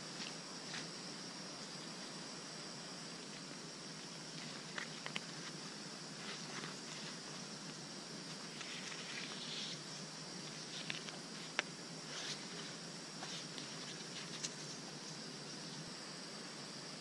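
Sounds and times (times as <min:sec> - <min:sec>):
steady high hiss: 0:00.0 - 0:17.0
dry bark crackling and rustling: 0:04.1 - 0:14.8.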